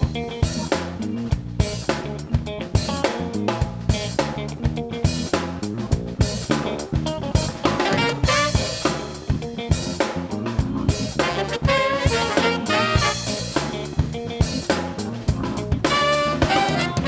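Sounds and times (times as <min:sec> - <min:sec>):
bass: 0:00.0 - 0:17.0
drum kit beat: 0:00.0 - 0:17.0
horn section playing riffs: 0:07.6 - 0:09.0, 0:11.2 - 0:13.8, 0:15.8 - 0:17.0.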